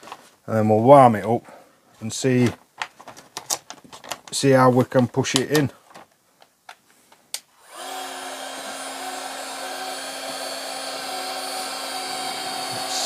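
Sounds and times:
heat gun fan air rushing: 7.6s - 13.0s.

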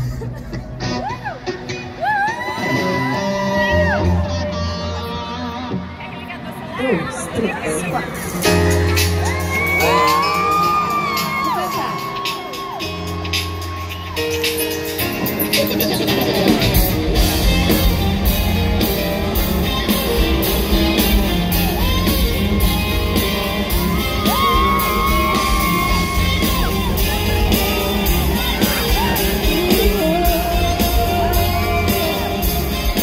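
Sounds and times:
live rock band playing: 0.0s - 6.7s, 7.4s - 33.0s
people singing and shouting: 0.0s - 33.0s
electric guitar: 7.6s - 33.0s.

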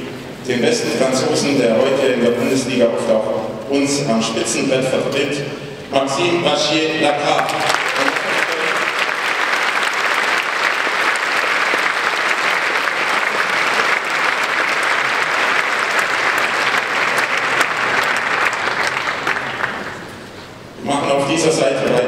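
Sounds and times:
large audience clapping: 7.2s - 20.3s.

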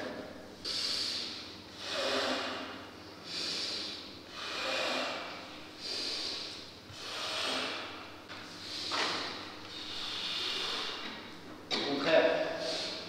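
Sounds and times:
man breathing loudly: 0.6s - 11.3s, 12.4s - 13.0s.

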